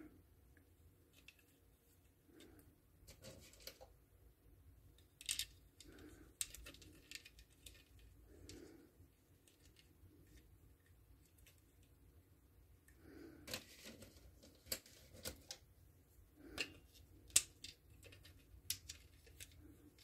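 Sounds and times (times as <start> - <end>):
small metal pegs clicking and rattling: 5.0 - 8.7, 16.5 - 20.0.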